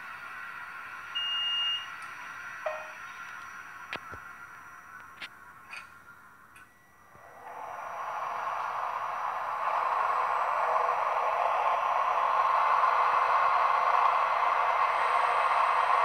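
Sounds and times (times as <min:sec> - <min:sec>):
locomotive cooling fans from speaker: 0:00.0 - 0:16.0.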